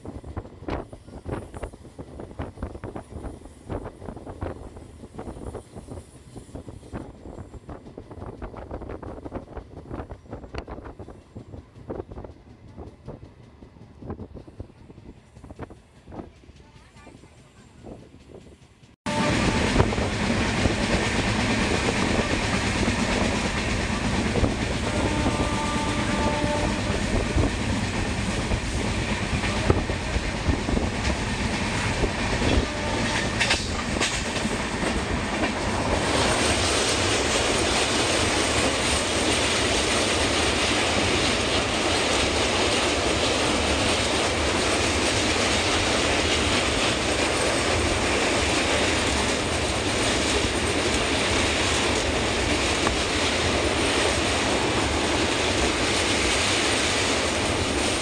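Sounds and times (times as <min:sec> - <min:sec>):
clickety-clack over rail joints: 0:00.0 - 0:58.0
train wheels rumbling on rails: 0:00.0 - 0:58.0.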